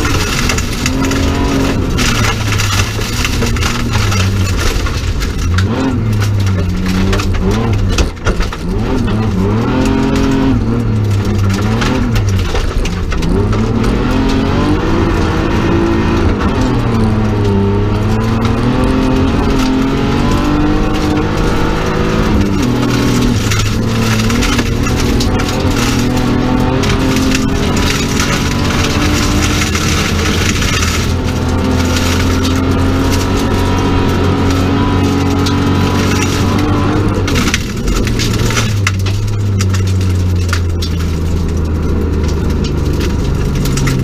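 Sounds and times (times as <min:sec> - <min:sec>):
rally car engine revving: 0:00.0 - 0:44.0
tyres and stones on gravel: 0:00.0 - 0:44.0.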